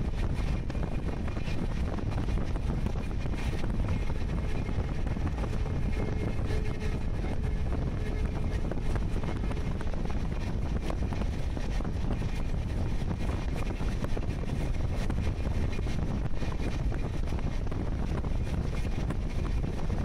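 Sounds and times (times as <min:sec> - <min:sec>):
moving train rumble: 0:00.0 - 0:20.0
wind buffeting microphone: 0:00.0 - 0:20.0.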